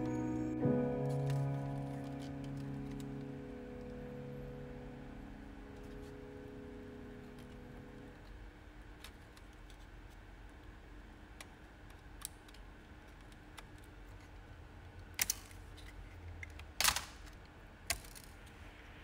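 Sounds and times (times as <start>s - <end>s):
sharp plastic snaps: 15.0s - 15.6s, 16.4s - 18.3s.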